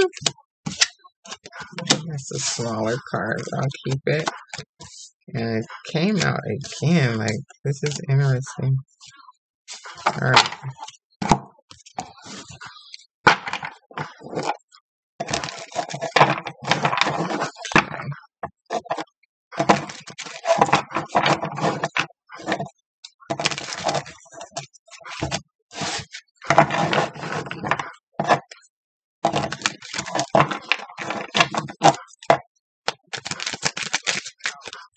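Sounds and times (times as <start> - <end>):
cards being shuffled: 32.9 - 34.9.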